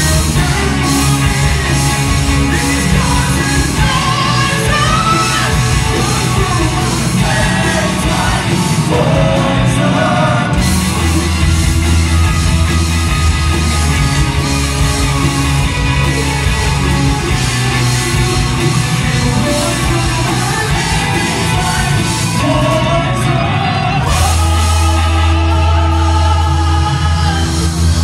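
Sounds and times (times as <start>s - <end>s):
man singing: 0.0s - 11.2s, 17.3s - 28.0s
live rock band playing: 0.0s - 28.0s.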